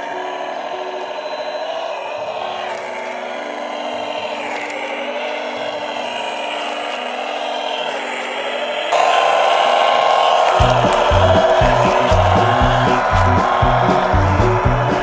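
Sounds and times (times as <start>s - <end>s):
toy truck electric motor whining: 0.0s - 15.0s.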